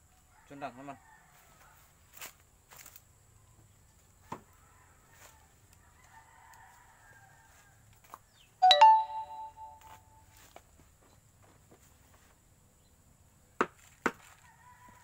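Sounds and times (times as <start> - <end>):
rooster crowing: 0.3 - 1.9, 4.5 - 7.8, 14.4 - 15.0.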